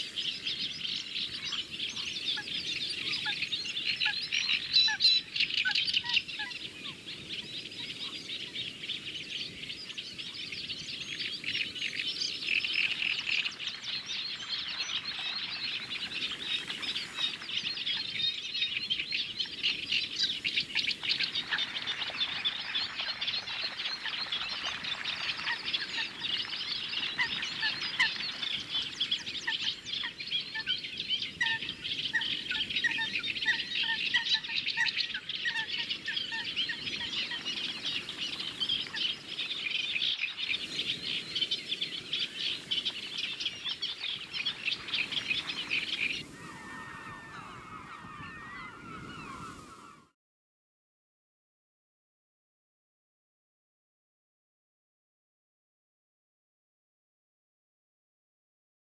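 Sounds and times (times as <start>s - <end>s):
chorus of chirping bird calls: 0.0s - 50.2s
evenly spaced lower calls: 12.4s - 50.2s.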